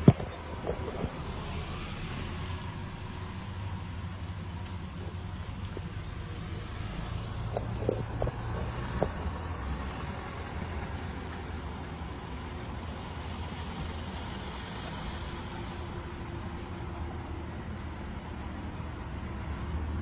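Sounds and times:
car cabin rumble: 0.0s - 12.0s.

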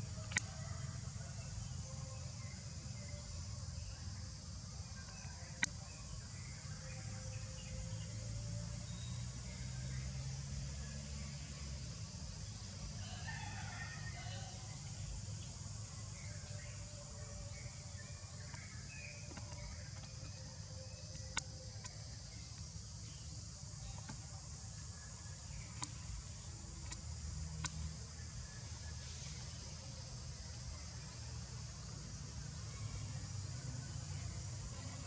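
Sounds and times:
steady high hiss: 0.0s - 35.0s
sharp clicks: 0.3s - 0.5s, 26.8s - 27.9s.

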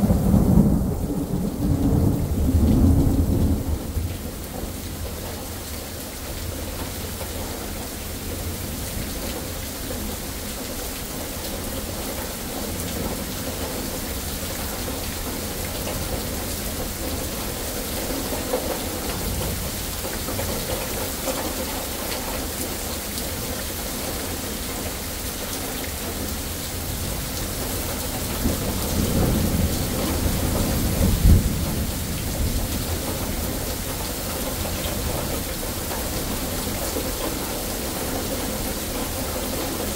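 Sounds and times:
thunder rumble: 0.0s - 4.8s, 28.3s - 33.6s
rain on pavement and foliage: 0.0s - 39.9s.

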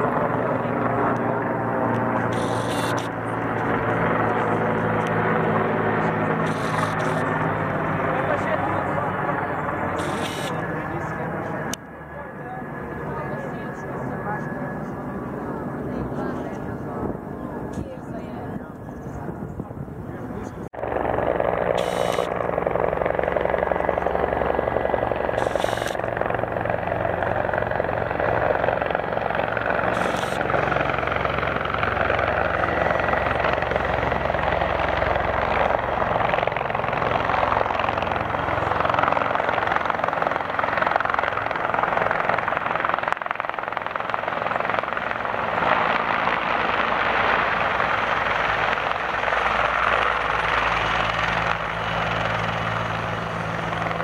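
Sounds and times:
helicopter rotor and engines: 0.0s - 54.0s.

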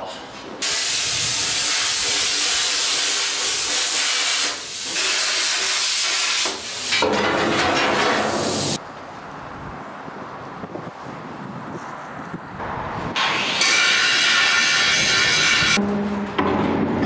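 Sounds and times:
cutting torch hissing: 0.6s - 7.0s, 13.2s - 15.8s.

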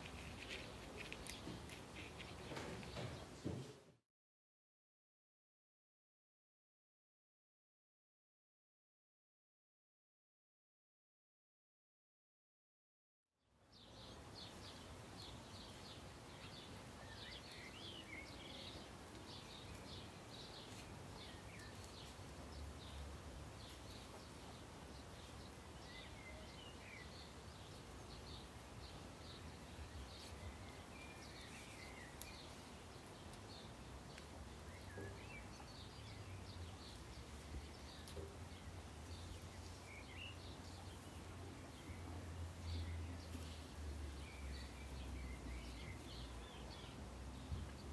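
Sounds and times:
small birds chirping: 0.0s - 3.6s, 13.7s - 47.9s
background hiss: 0.0s - 4.0s, 13.6s - 47.9s.

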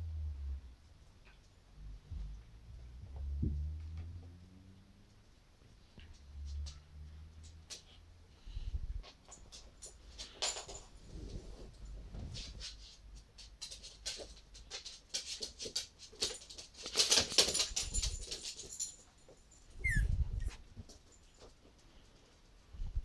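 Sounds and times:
puppy claws scratching and clicking: 6.0s - 8.0s, 12.6s - 19.1s
puppy whimper: 19.8s - 20.6s.

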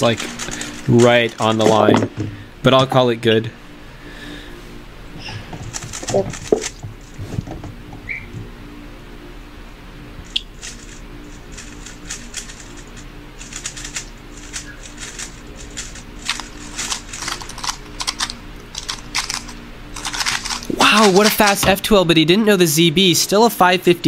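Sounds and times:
faint steady hum: 0.0s - 24.0s
puzzle cube plastic clicks: 13.6s - 21.6s.

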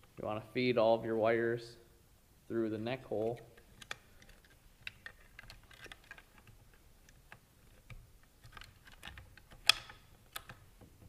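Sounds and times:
rustling of wiring: 2.8s - 11.0s
plastic clicks: 3.2s - 11.0s.

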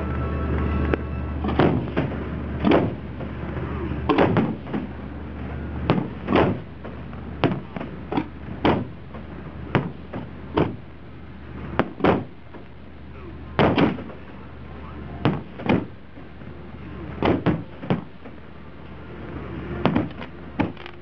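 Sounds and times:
fireworks booming: 1.4s - 11.0s, 13.5s - 14.5s, 15.2s - 16.5s.

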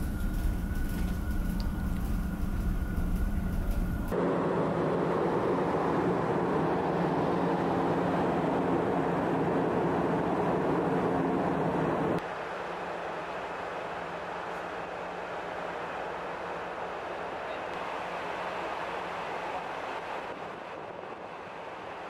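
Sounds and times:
ship machinery low rumble: 0.0s - 12.2s
steady rushing noise: 0.0s - 22.0s.

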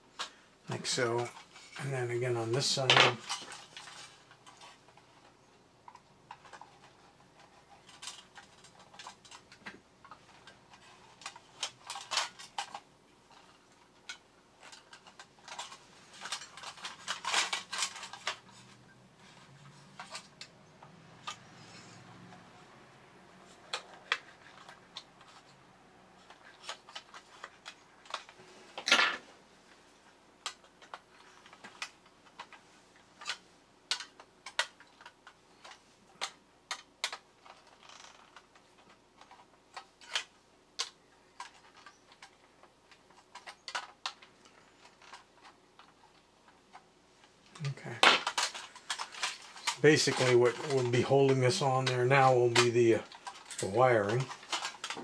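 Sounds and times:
thin metal clicks and scrapes: 3.2s - 22.4s, 30.4s - 46.8s, 47.5s - 55.0s.

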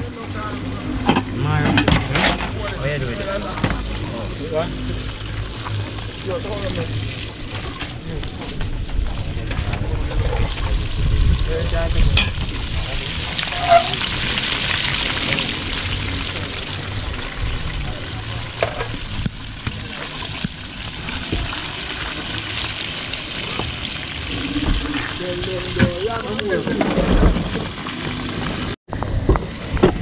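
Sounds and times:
low rumble: 0.1s - 26.2s
food sizzling in hot oil: 1.1s - 8.1s, 10.4s - 26.7s.

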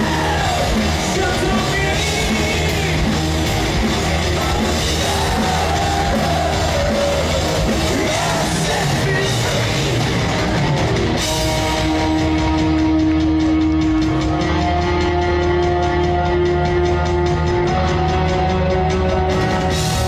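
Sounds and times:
heavy metal band playing live: 0.0s - 20.0s.

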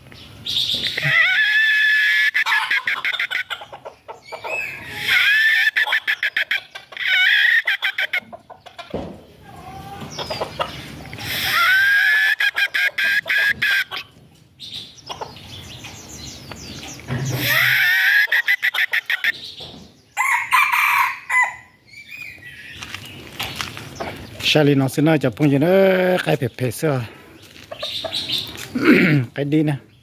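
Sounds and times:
rooster crowing: 20.2s - 21.8s.

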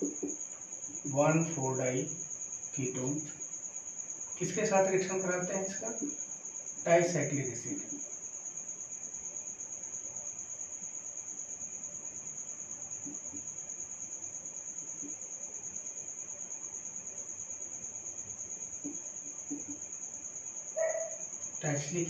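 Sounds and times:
cricket chirping: 0.0s - 22.0s.

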